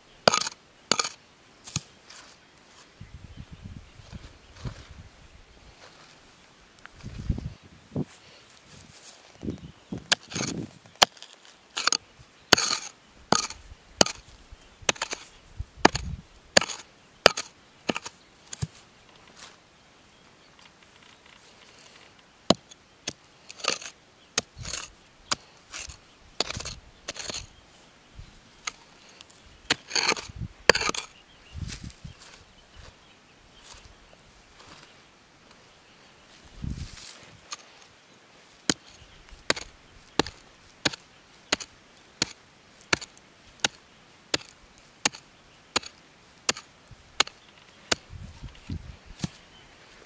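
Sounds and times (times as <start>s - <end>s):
digging tool chopping soil: 0.3s - 1.9s, 10.0s - 14.3s, 14.9s - 15.2s, 15.8s - 18.8s, 22.5s - 27.4s, 29.7s - 31.1s, 38.7s - 48.1s, 49.2s - 49.4s.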